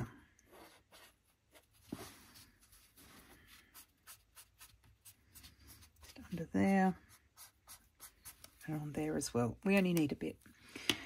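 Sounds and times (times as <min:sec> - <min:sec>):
marker strokes on paper: 0:00.5 - 0:08.8.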